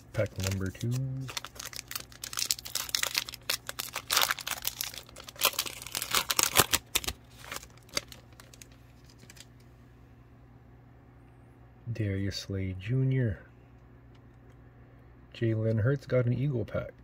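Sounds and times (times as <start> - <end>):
plastic wrapper crinkling: 0.0 - 9.6.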